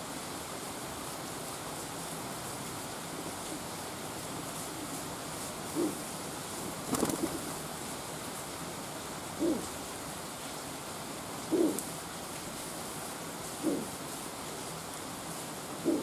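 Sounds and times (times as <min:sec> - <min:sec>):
steady rain: 0:00.0 - 0:16.0
pigeon cooing: 0:05.7 - 0:06.1, 0:09.4 - 0:09.8, 0:11.5 - 0:11.9, 0:13.6 - 0:14.0, 0:15.8 - 0:16.0.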